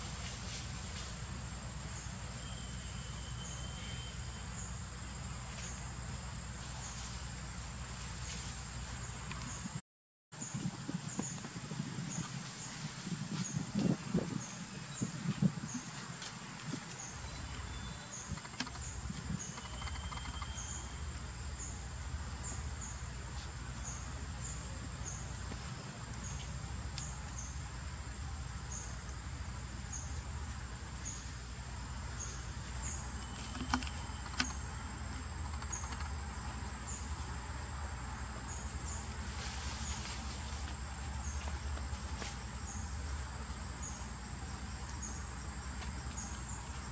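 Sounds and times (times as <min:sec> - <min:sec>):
insect chirp: 0:00.0 - 0:09.8, 0:10.4 - 0:46.9
insects droning: 0:00.0 - 0:09.8, 0:10.4 - 0:46.9
sharp clicks: 0:18.2 - 0:20.6, 0:33.4 - 0:34.6, 0:35.4 - 0:36.2.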